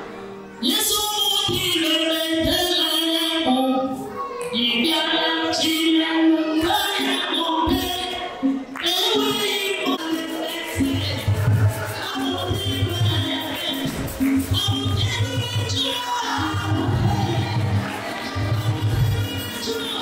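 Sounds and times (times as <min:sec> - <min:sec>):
women singing: 0:04.6 - 0:20.0.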